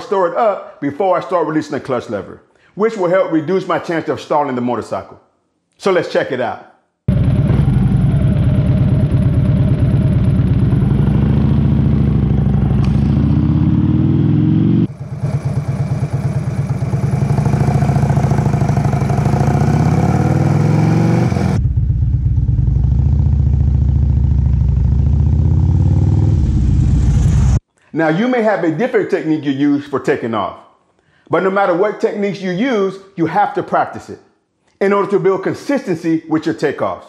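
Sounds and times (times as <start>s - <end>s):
motorcycle engine revving: 7.1s - 27.6s.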